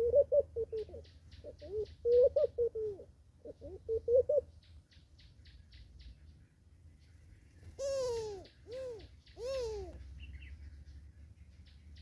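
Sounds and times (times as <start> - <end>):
dove cooing: 0.0 - 4.5, 7.6 - 10.2.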